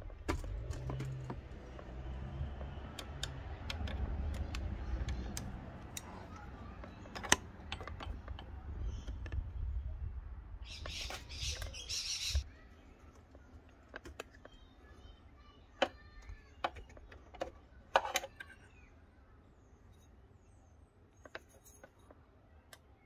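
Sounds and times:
metal and plastic parts clicking: 0.0 - 9.5, 13.2 - 14.6, 15.8 - 18.7.

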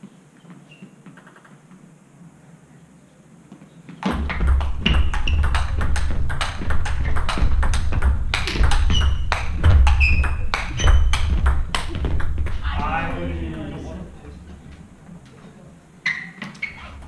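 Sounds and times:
shoes squeaking on floor: 0.0 - 1.9, 3.4 - 12.9, 15.1 - 17.0
thuds of footwork: 3.5 - 12.8
table tennis ball clicking: 4.4 - 12.3.

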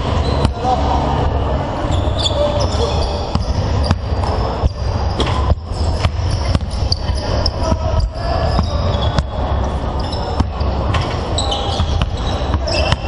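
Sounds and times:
basketballs bouncing on wooden floor: 2.6 - 13.0.

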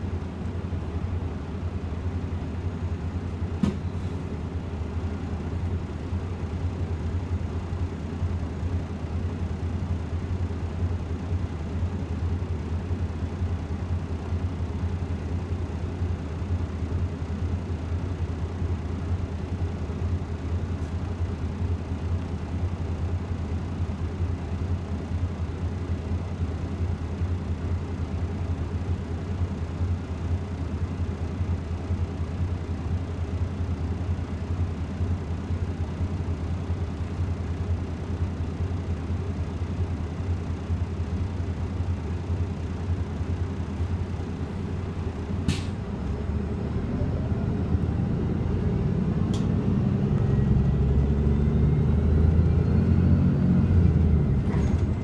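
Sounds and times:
bus cabin low drone: 0.0 - 55.0
click: 49.3 - 49.5.

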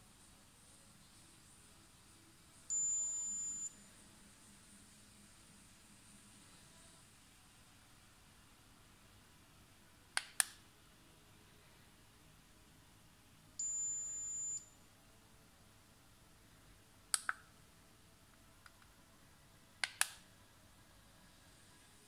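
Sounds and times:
high-pitched thermometer beep: 2.7 - 3.8, 13.6 - 14.8.

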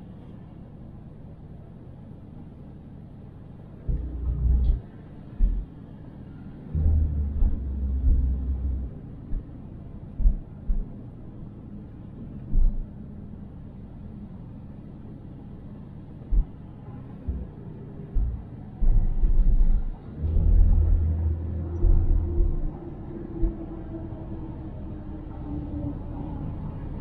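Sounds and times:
car road rumble: 0.0 - 27.0
deep thumps: 3.9 - 4.8, 5.4 - 5.7, 6.8 - 9.5, 10.2 - 10.9, 12.5 - 12.9, 16.3 - 16.6, 17.3 - 22.8.

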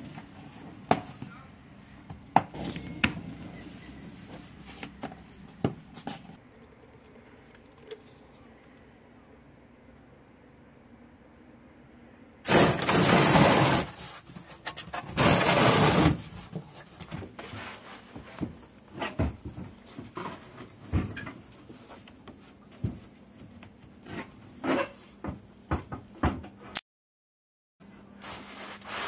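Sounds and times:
loud bursts of harsh noise: 12.4 - 14.0.

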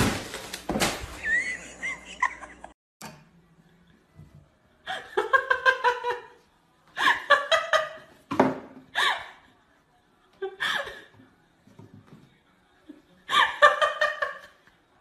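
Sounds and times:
person laughing: 1.1 - 2.8.

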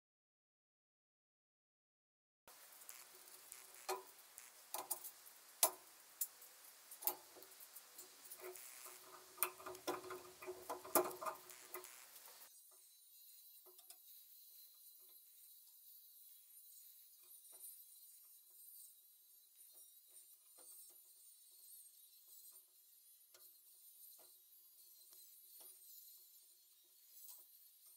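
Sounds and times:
faint ticks: 2.5 - 12.8, 13.6 - 14.1, 23.3 - 25.8
metallic clicks of spanner and parts: 7.0 - 11.9.

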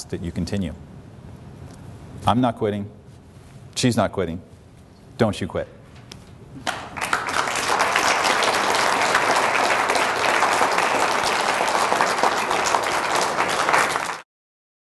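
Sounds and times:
audience applauding: 6.6 - 14.2.

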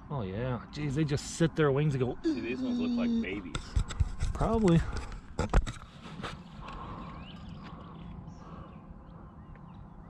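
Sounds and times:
geese calling: 2.2 - 3.5.

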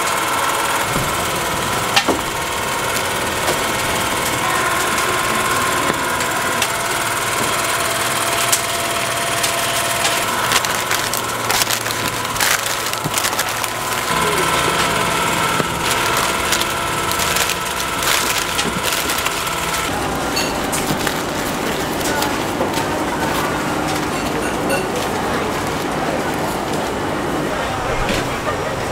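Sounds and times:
steady background hum: 0.0 - 28.9
sharp paper crackles: 7.9 - 19.9, 20.7 - 24.2
paper rustling and crinkling: 9.4 - 19.9, 20.6 - 24.2.

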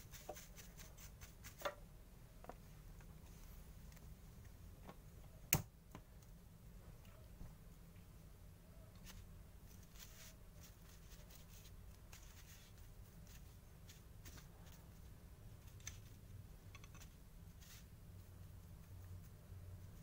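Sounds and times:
paintbrush scratching metal: 0.0 - 1.6
low steady hum: 0.0 - 20.0.

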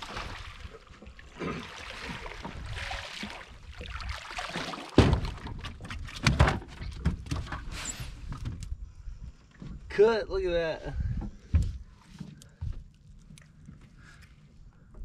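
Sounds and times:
fish splashing: 0.0 - 6.2
water noise: 0.0 - 7.7
wind noise: 10.9 - 11.8.

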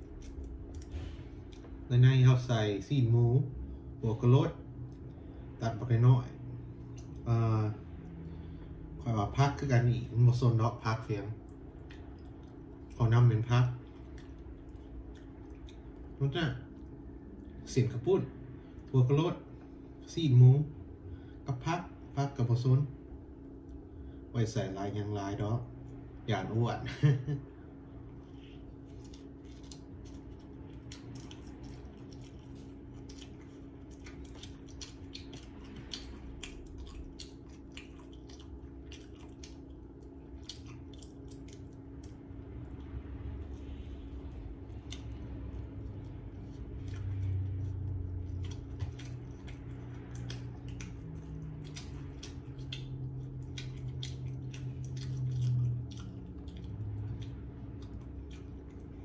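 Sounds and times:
chewing and biting: 0.0 - 1.9, 11.4 - 17.7, 28.0 - 59.0
low held hums: 0.0 - 59.0
steady low background hum: 0.0 - 59.0
wet mouth clicks: 48.4 - 58.9.

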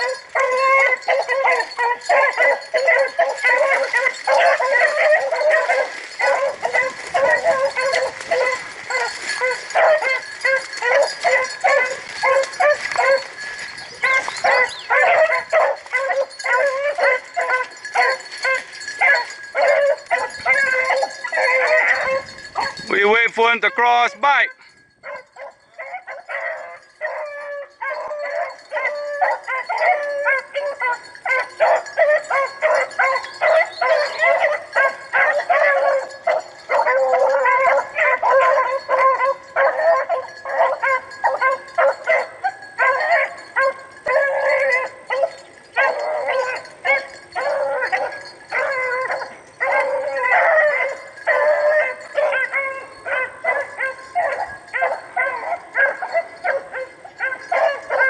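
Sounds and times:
hounds baying and howling: 0.0 - 58.0.

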